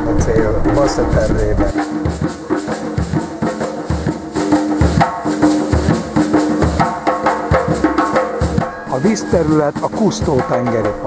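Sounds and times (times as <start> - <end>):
hand drums: 0.0 - 11.0
shaker: 0.8 - 10.5.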